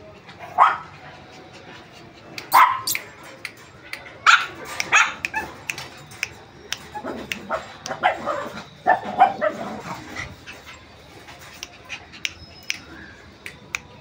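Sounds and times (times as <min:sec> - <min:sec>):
sharp clicks: 0:11.6 - 0:14.0.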